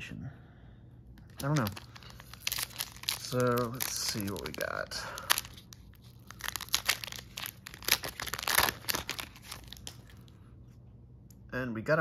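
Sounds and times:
foil wrapper crinkling: 1.2s - 10.4s.

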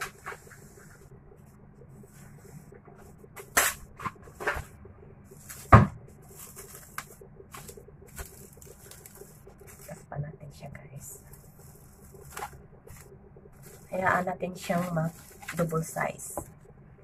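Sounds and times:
plastic cling wrap rustling: 5.4s - 10.0s, 11.2s - 13.0s, 13.6s - 16.0s.

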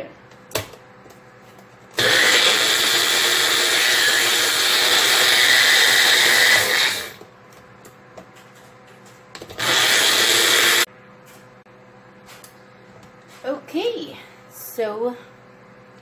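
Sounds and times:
blender running: 2.0s - 7.3s, 9.5s - 10.9s.

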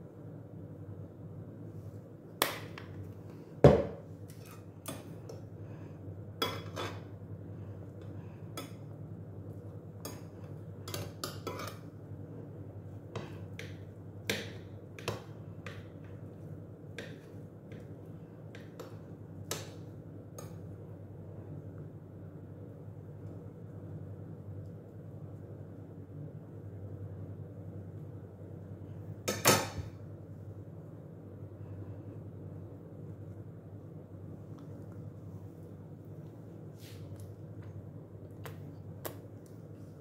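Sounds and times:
steady low hum: 0.0s - 40.0s
dishes and cutlery clinking: 6.4s - 7.1s.

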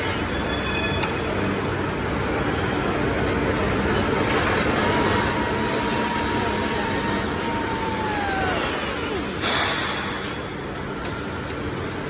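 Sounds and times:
workshop machinery running: 0.0s - 12.0s
thin steady whine: 4.8s - 10.7s.

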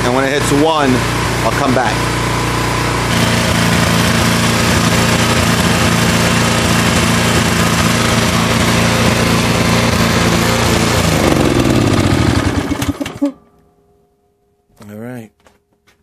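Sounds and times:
lawn mower engine running: 0.0s - 13.5s.

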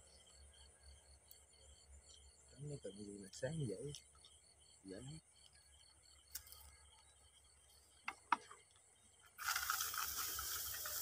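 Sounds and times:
night insects chirping: 0.0s - 11.0s
loud rustling and crunching: 9.4s - 11.0s.

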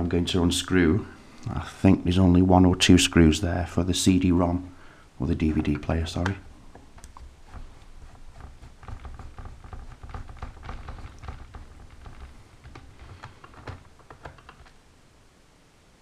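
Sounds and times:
low handling bumps: 4.5s - 14.8s.

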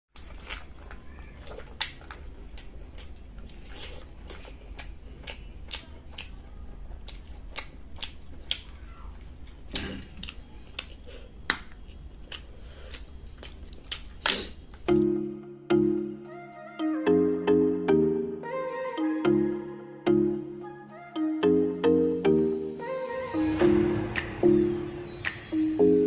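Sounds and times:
mouth chewing clicks and smacks: 1.4s - 14.8s.

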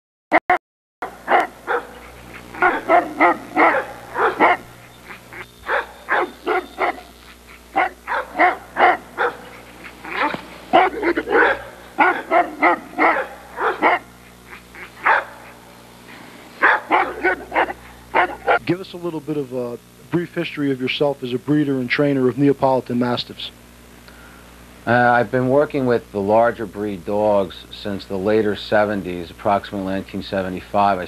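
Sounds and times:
dog barking: 1.0s - 15.6s, 16.6s - 18.6s.

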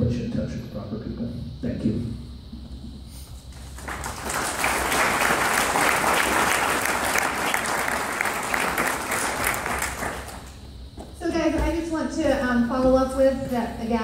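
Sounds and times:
audience applause: 3.6s - 10.6s.

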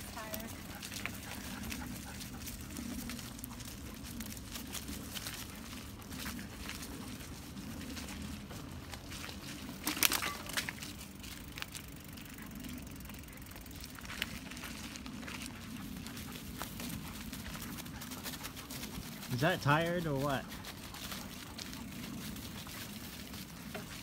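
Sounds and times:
steady low rumble: 0.0s - 9.8s
wet leaves crunching underfoot: 2.4s - 11.9s, 13.8s - 16.2s.

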